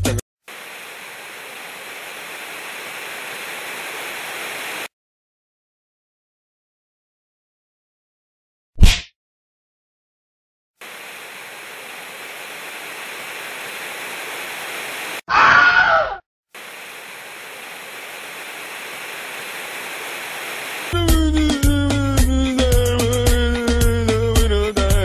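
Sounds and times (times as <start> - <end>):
television static hiss: 0.5 - 4.9, 10.8 - 15.2, 16.6 - 20.9
wavering cry-like sound: 15.3 - 16.2.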